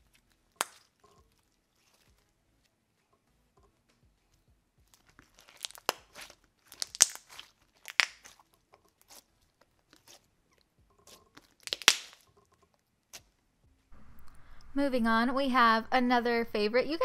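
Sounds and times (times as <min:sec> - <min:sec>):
slime crackling pops: 0:00.6 - 0:00.9, 0:05.2 - 0:08.4, 0:11.4 - 0:12.3.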